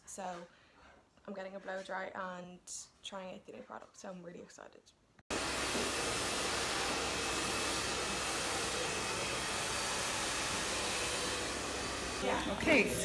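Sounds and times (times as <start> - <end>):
hair dryer running: 5.3 - 13.0.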